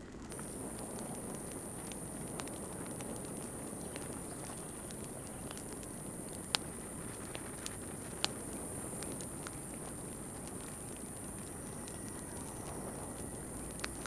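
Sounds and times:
constant high hiss: 0.0 - 14.0.

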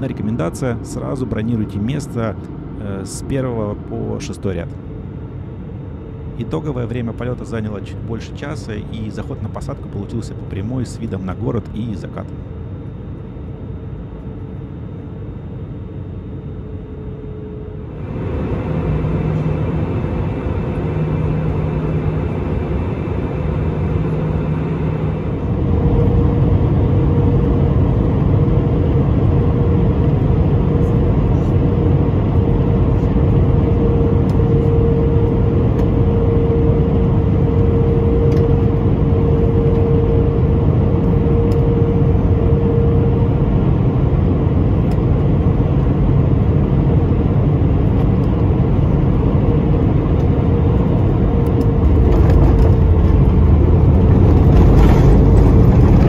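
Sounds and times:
jet engine and airflow noise: 0.0 - 56.0
steady cabin hum: 0.0 - 56.0
airliner touching down: 17.0 - 56.0.

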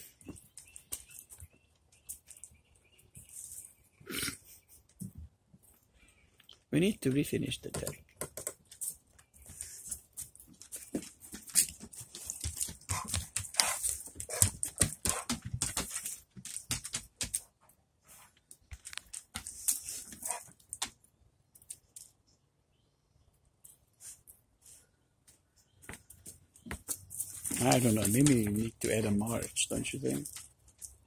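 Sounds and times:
dogs sniffing: 12.2 - 16.1, 19.4 - 20.5.

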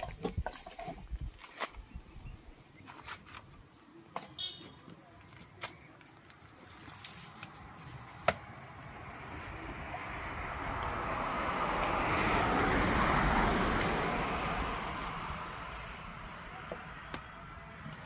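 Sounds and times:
vehicle passing: 7.5 - 18.0.

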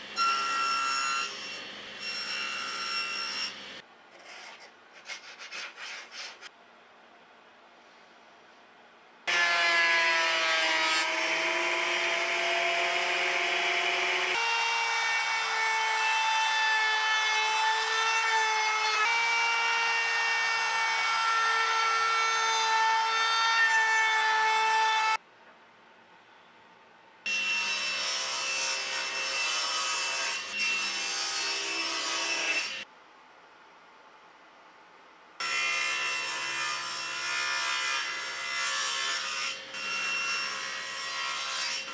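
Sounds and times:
table saw cutting: 0.0 - 3.8, 9.3 - 25.2, 27.3 - 32.8, 35.4 - 41.9.

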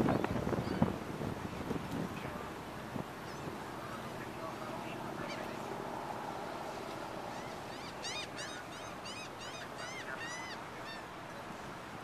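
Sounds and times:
boat noise: 0.0 - 12.0
wind: 0.0 - 12.0
bird squealing calls: 7.4 - 11.0.

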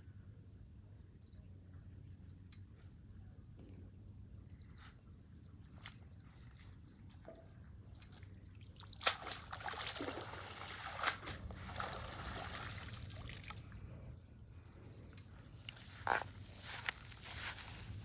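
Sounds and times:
water splashing: 8.6 - 13.8
water trickling off net: 8.9 - 13.6.

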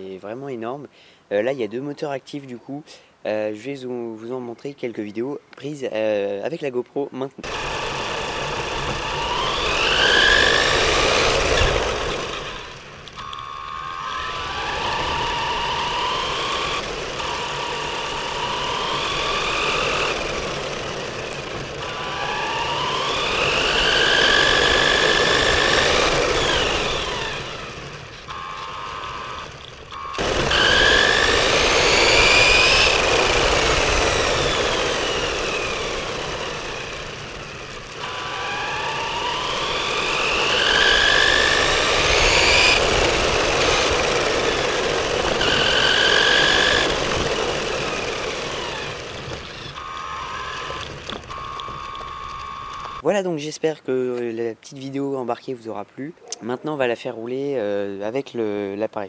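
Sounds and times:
rc car motor and gears whining: 7.4 - 53.0.

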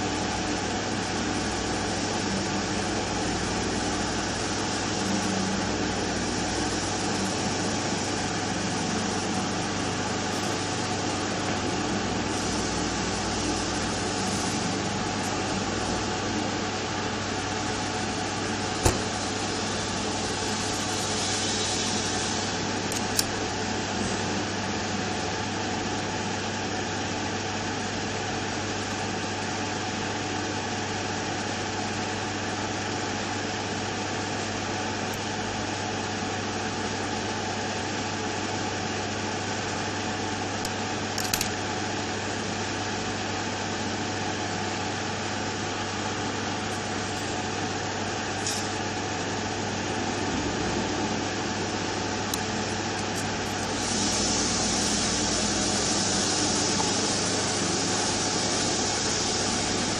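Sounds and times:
hot-air gun hissing: 0.0 - 24.2, 40.4 - 42.9, 43.7 - 59.9.

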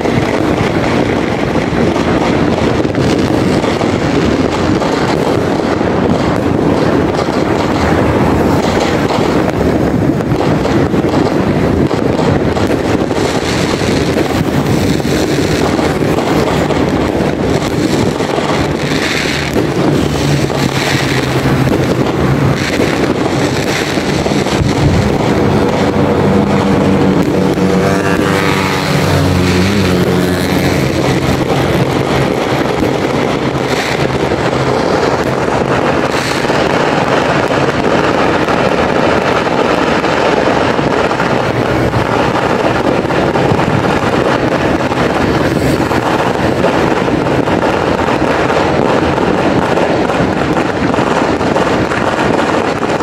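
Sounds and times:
distant firecracker bangs: 0.0 - 53.0
road traffic rush: 0.0 - 53.0
wind on microphone: 0.0 - 53.0
vehicle passing: 13.2 - 38.6, 40.8 - 47.6.

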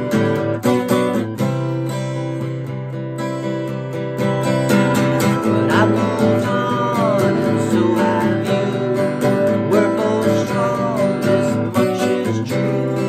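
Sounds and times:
acoustic guitar strumming: 0.0 - 13.0
man singing: 4.7 - 13.0.

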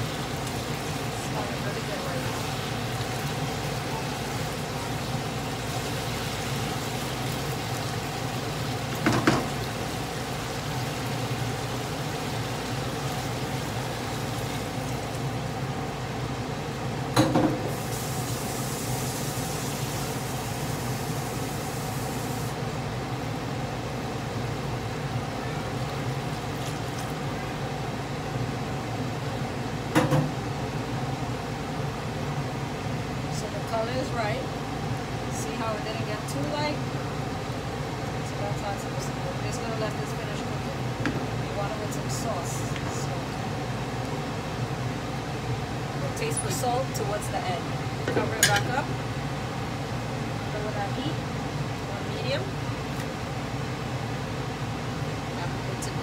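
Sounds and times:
chicken simmering and sizzling: 0.0 - 33.4
low background hum: 0.0 - 56.0.

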